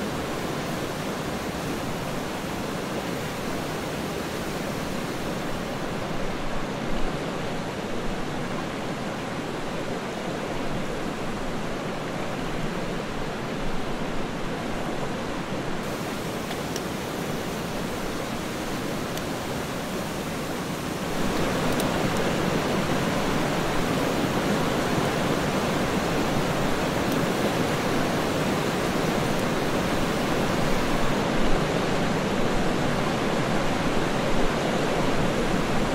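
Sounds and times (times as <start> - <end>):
stream rushing over rocks: 0.0 - 35.9
faint clicks: 21.4 - 22.3.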